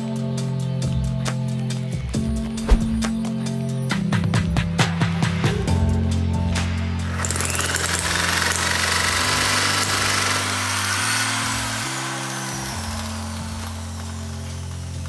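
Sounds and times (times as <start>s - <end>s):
small gasoline engine whirring: 7.1s - 15.0s.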